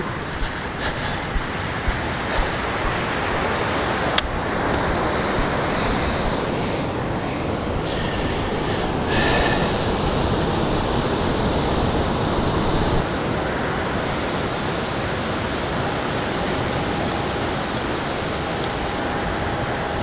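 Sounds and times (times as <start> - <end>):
surf rushing: 0.0 - 20.0
wind rumbling on microphone: 0.0 - 20.0.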